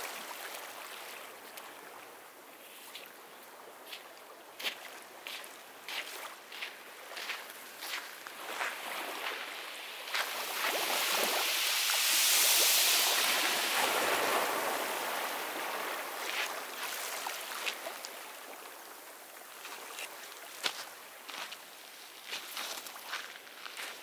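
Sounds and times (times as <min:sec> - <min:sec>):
surf breaking on beach: 0:08.7 - 0:16.8.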